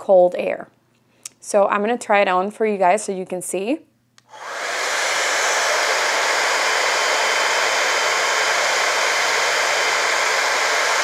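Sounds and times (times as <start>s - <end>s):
hair dryer blowing air: 4.2s - 11.0s.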